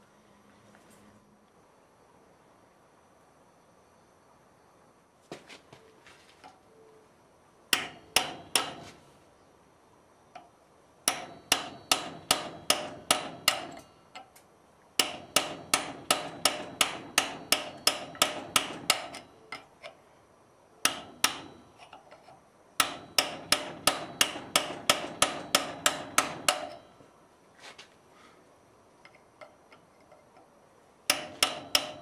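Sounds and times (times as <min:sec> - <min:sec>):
hammer striking chisel on steel: 0:07.7 - 0:09.0, 0:11.1 - 0:14.3, 0:15.0 - 0:19.7, 0:20.8 - 0:27.0, 0:31.1 - 0:32.0.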